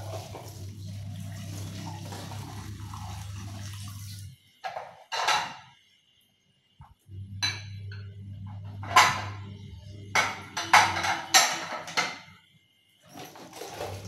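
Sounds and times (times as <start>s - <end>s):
faucet running into sink: 0.0s - 4.8s, 13.1s - 14.0s
dishes splashing and clattering: 0.0s - 5.8s, 7.3s - 12.4s, 13.0s - 14.0s.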